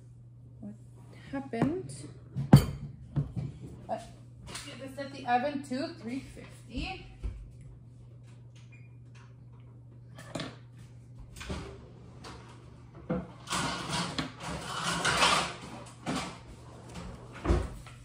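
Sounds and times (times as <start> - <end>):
steady low hum: 0.0 - 18.0
kitchen clatter: 13.1 - 16.4.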